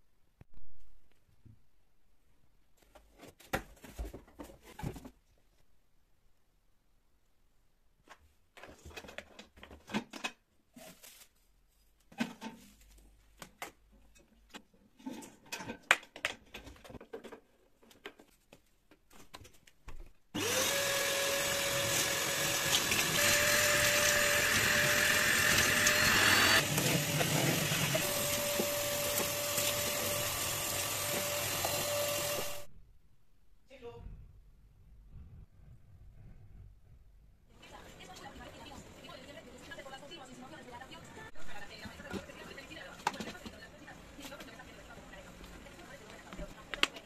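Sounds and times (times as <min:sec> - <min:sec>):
vacuum motor whining: 0:20.4 - 0:32.7.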